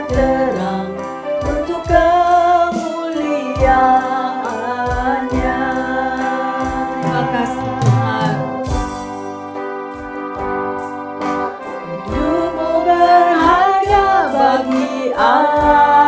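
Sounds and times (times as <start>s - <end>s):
woman singing: 0.0s - 9.0s, 11.8s - 16.0s
bass guitar: 0.0s - 16.0s
electronic drum beat: 4.8s - 10.6s, 11.8s - 14.8s.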